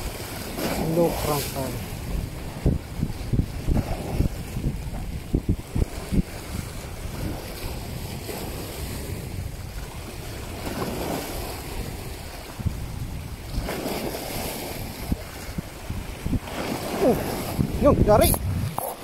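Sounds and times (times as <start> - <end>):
small waves splashing over rocks: 0.0 - 12.8, 13.4 - 19.0
wind rumbling on microphone: 0.0 - 19.0.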